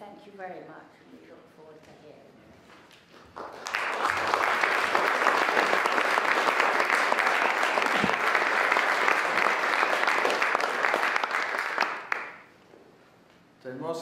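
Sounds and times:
audience applauding: 0:03.3 - 0:12.5.

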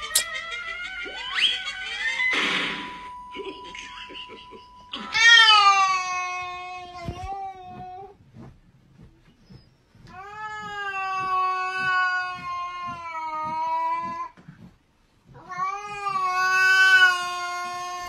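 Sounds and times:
cat yowling: 0:05.0 - 0:07.0, 0:15.4 - 0:18.0.

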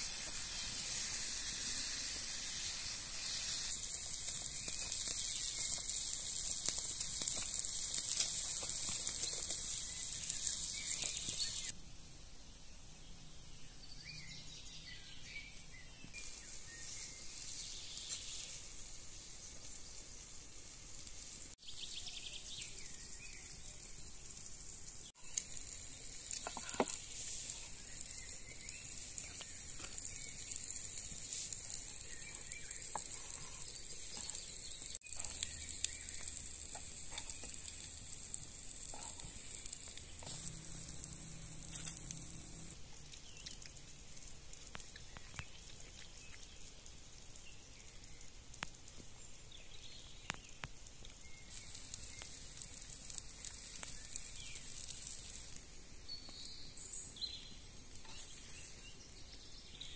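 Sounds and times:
birds chirping: 0:00.0 - 0:11.7, 0:25.1 - 0:43.7, 0:49.2 - 0:59.9
steady high hiss: 0:00.0 - 0:59.9.

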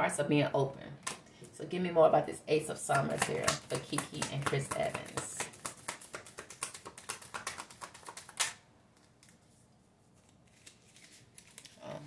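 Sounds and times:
cards slapping: 0:02.9 - 0:09.4
cards being shuffled: 0:02.9 - 0:09.6, 0:10.2 - 0:12.0.

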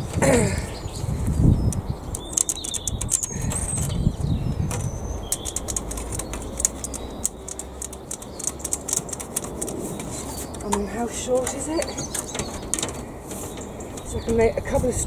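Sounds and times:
high bird chirps: 0:00.6 - 0:08.9
plastic panel clicks and rattles: 0:01.7 - 0:14.4.

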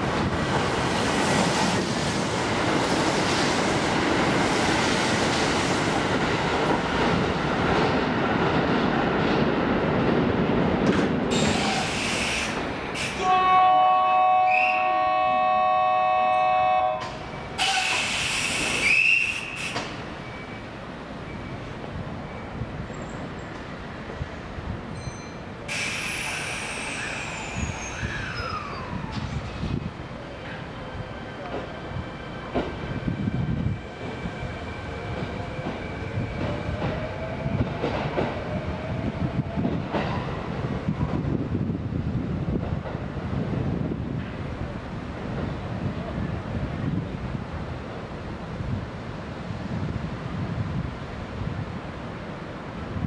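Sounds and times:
train compressed air hissing: 0:11.3 - 0:13.3, 0:17.6 - 0:20.1, 0:25.7 - 0:28.2.

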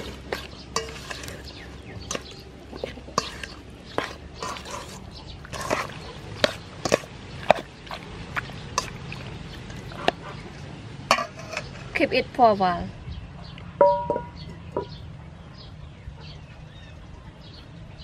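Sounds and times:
wet squelching: 0:00.0 - 0:11.0.

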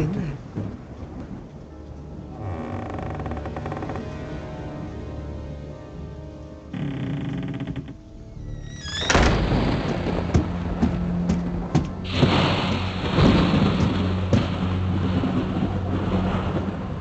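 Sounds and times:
heavy rain: 0:00.0 - 0:06.8, 0:07.5 - 0:17.0
film score music: 0:00.0 - 0:17.0
low music drone: 0:00.0 - 0:17.0
thunder cracks: 0:09.1 - 0:17.0.

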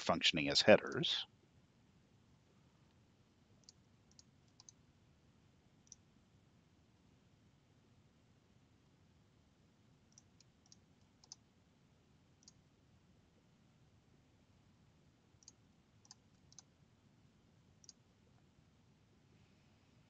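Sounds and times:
faint computer mouse clicks: 0:03.6 - 0:04.8, 0:10.1 - 0:11.4, 0:12.4 - 0:12.6, 0:15.4 - 0:16.7.

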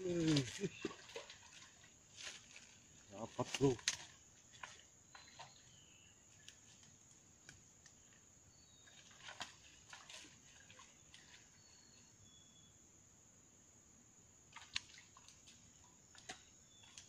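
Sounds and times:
faint bird chirps: 0:04.6 - 0:07.0, 0:07.8 - 0:12.8, 0:15.7 - 0:17.0.

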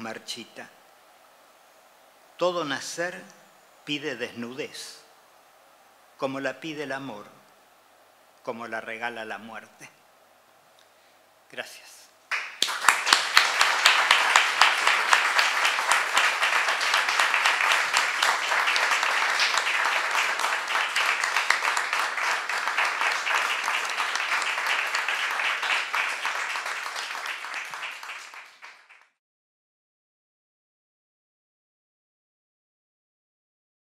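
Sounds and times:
audience applauding: 0:12.3 - 0:29.2.

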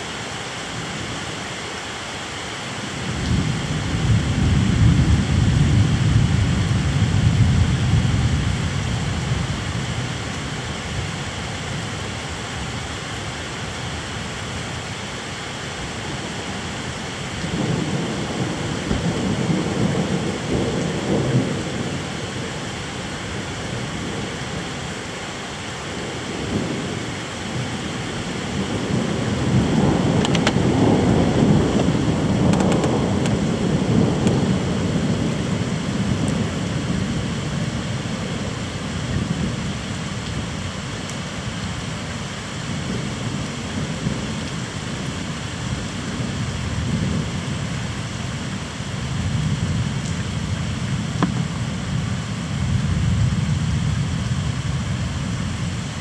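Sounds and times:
steady rain: 0:00.0 - 0:56.0
rolling thunder: 0:03.1 - 0:10.2, 0:17.3 - 0:24.8, 0:25.9 - 0:39.8.

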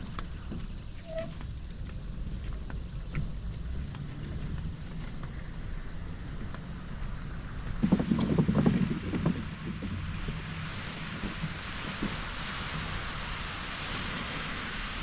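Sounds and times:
bicycle wheels on wooden planks: 0:00.0 - 0:15.0
rushing hiss: 0:09.4 - 0:15.0.

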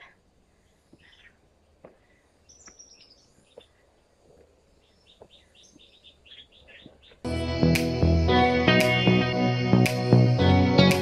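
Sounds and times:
woodland birdsong: 0:00.0 - 0:07.3
footsteps on dirt trail: 0:00.9 - 0:07.3.

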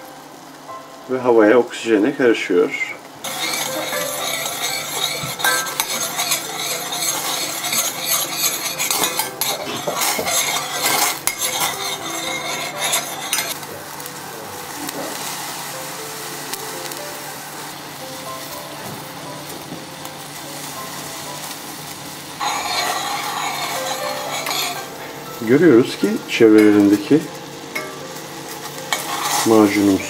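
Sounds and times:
syrup sizzling and bubbling: 0:00.5 - 0:30.0
metal spoon scraping a pot: 0:03.2 - 0:13.6, 0:22.4 - 0:24.9, 0:28.6 - 0:30.0.

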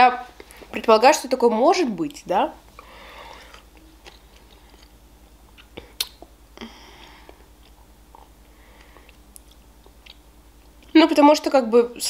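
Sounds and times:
short breath: 0:02.8 - 0:03.6
mouth clicks: 0:05.5 - 0:06.4.

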